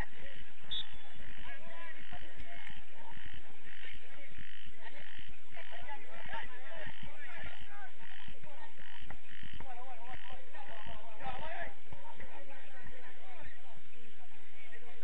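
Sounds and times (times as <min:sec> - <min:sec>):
frogs croaking: 0:00.0 - 0:11.6.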